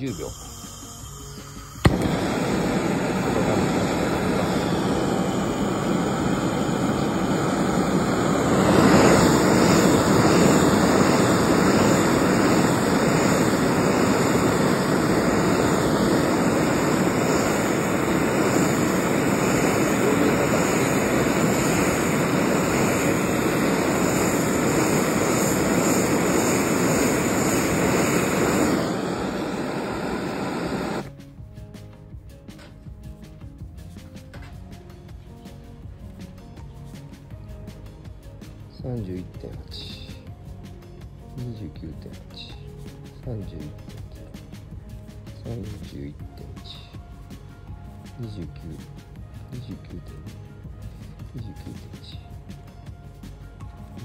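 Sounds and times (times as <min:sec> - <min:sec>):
gas burner torch roaring: 0:00.0 - 0:31.1
gas torch ignition click: 0:01.6 - 0:04.9.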